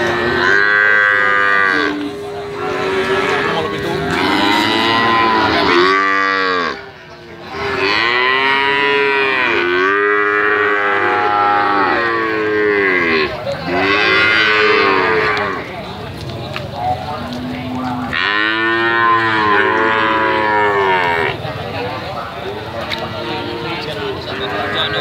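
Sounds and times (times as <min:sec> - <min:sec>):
calves mooing: 0:00.0 - 0:06.8, 0:07.5 - 0:15.7, 0:18.0 - 0:21.4.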